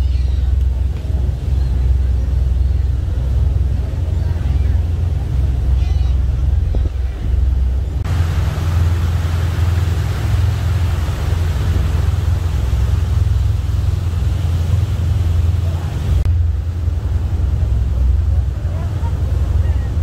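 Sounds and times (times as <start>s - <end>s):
low engine rumble: 0.0s - 20.0s
wind and rushing air hiss: 6.4s - 20.0s.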